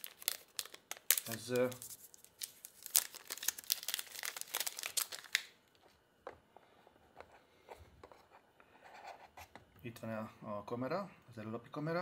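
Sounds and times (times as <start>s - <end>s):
plastic wrapping crinkling: 0.0s - 6.0s.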